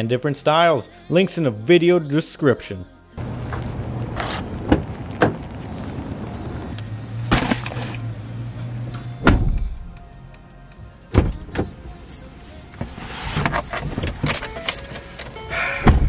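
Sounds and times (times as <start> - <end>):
background music: 0.0 - 16.0
car door heavy thumps: 9.2 - 9.8, 11.1 - 11.7.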